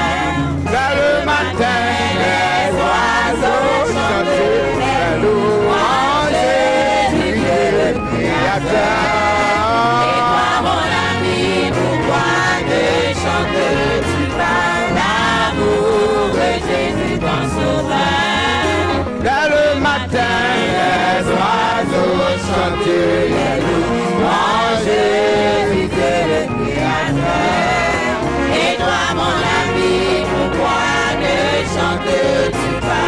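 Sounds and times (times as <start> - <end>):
church band with brass: 0.0 - 33.0
men singing gospel into microphones: 0.0 - 33.0.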